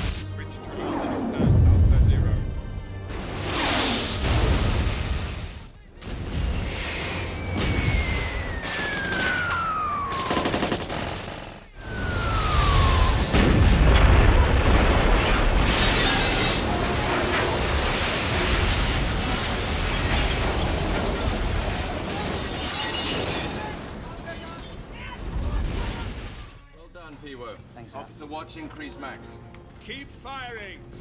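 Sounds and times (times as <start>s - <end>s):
film score: 0.0s - 31.0s
large explosion: 4.1s - 11.2s, 11.8s - 22.5s
descending shell whistles: 6.9s - 10.8s, 11.7s - 13.8s
rumble of fire and falling debris: 11.8s - 26.6s.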